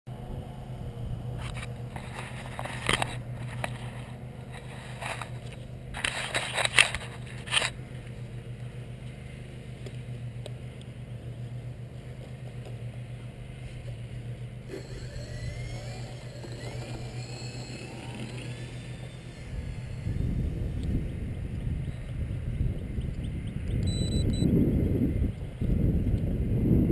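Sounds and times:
model plane motors droning: 0:00.1 - 0:24.2
camera handling scraping: 0:01.4 - 0:07.8.

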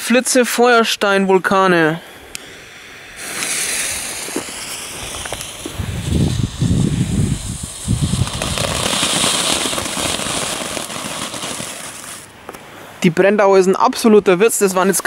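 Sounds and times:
firework fountain hissing: 0:02.7 - 0:12.4
low firework puffs: 0:03.1 - 0:12.3.

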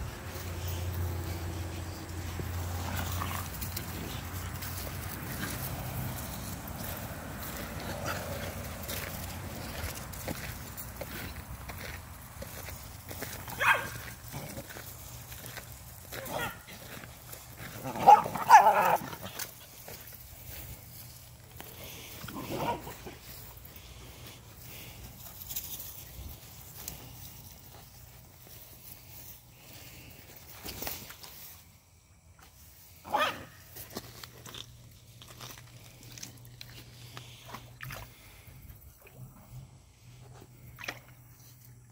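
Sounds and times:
dog paws splashing in water: 0:00.0 - 0:23.5, 0:40.5 - 0:41.8
dog barking: 0:13.5 - 0:14.0, 0:16.2 - 0:16.7, 0:18.0 - 0:19.0, 0:33.1 - 0:33.5.

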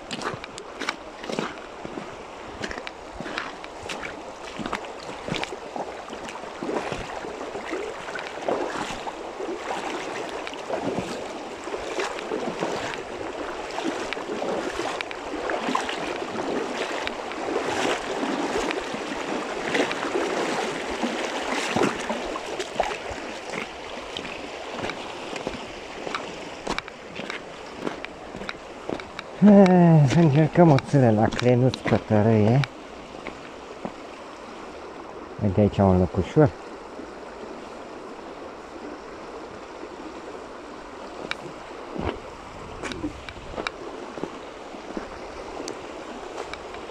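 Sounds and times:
small irregular clicks and rustles: 0:00.0 - 0:01.7, 0:02.6 - 0:04.0, 0:24.8 - 0:29.7, 0:41.2 - 0:41.5, 0:46.4 - 0:46.9
running water: 0:00.0 - 0:46.9
wind: 0:00.0 - 0:46.9.

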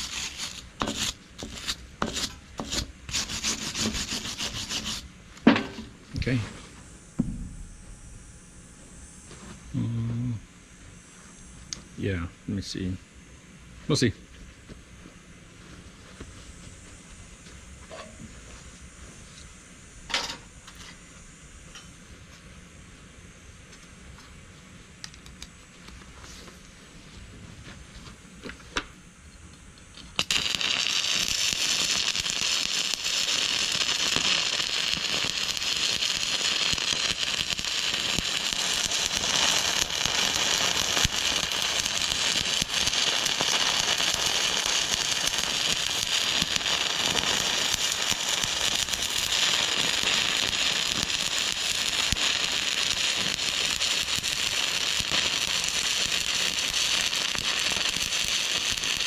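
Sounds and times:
welding arc crackling: 0:00.0 - 0:08.3, 0:29.9 - 0:59.0.

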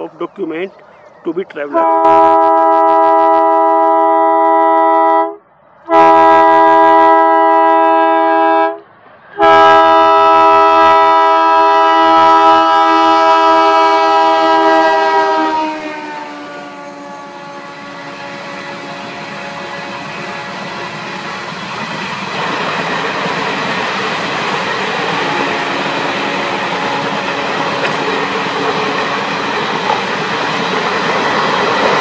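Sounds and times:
train coaches rumbling on track: 0:00.0 - 0:32.0
locomotive horn blasts: 0:01.7 - 0:08.8, 0:09.4 - 0:21.4, 0:25.2 - 0:27.9.

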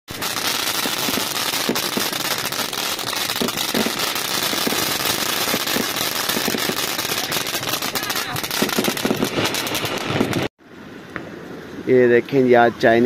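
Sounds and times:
firework fountain hissing and crackling: 0:00.1 - 0:10.5.

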